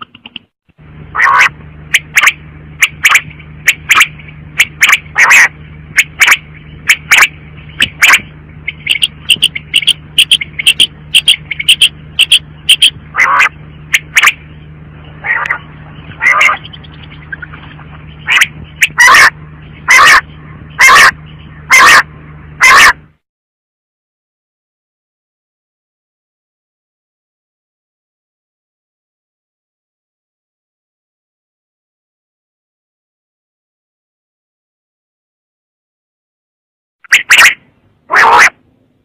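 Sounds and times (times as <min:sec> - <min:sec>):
steady low hum: 0:00.0 - 0:23.2, 0:37.0 - 0:39.0
quail calling: 0:01.1 - 0:23.0, 0:37.1 - 0:38.6.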